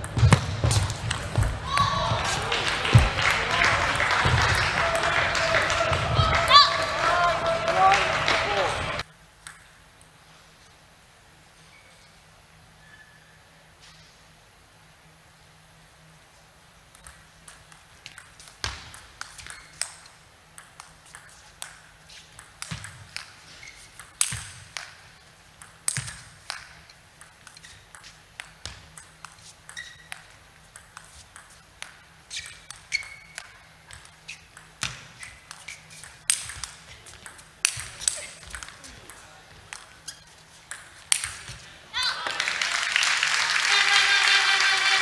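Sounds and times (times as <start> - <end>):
table tennis ball ticking: 17.0 - 41.5.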